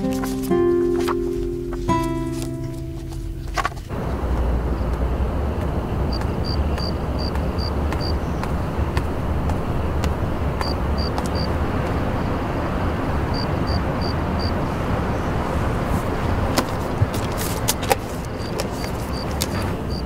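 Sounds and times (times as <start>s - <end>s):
low city rumble: 0.0s - 20.0s
plastic bottles clicking and rustling: 16.5s - 19.7s.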